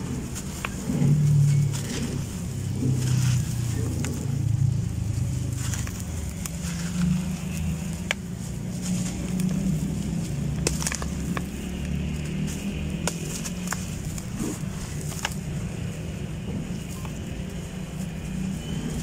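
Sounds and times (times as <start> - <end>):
sharp crackles: 0.0 - 19.0
steady low rumble: 0.0 - 19.0
crumbly blocks crushed by hand: 5.4 - 15.6.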